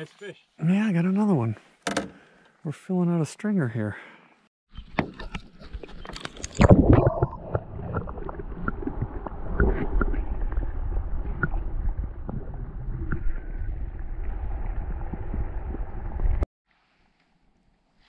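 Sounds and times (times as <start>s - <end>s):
underwater knocks and gurgles: 4.9s - 16.4s.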